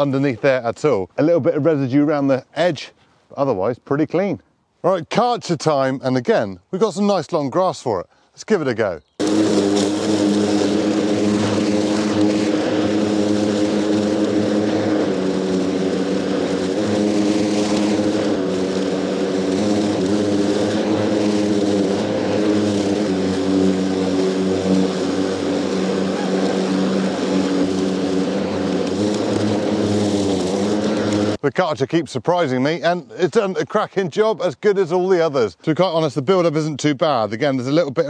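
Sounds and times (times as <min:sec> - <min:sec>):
lawnmower whirring hum: 0:09.2 - 0:31.5.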